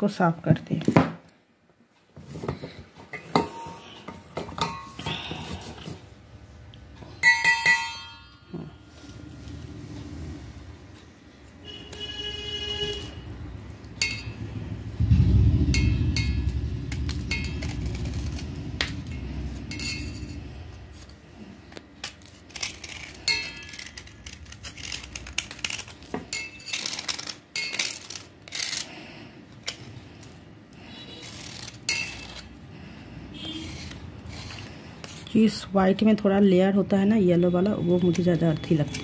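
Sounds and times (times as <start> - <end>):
low rumble: 13.1 - 21.4
knife scraping clay: 22.0 - 29.0, 30.8 - 32.6, 33.4 - 35.4.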